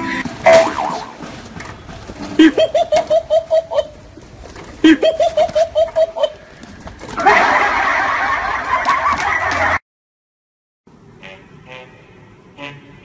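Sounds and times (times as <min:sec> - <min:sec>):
person laughing rapidly: 0:02.4 - 0:04.0, 0:04.8 - 0:06.4, 0:07.2 - 0:09.8.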